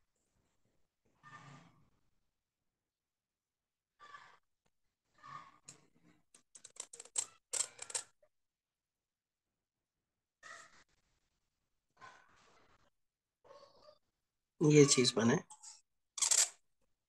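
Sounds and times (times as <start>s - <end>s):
sharp dry clicks and scratches: 6.4s - 8.2s, 16.2s - 16.6s.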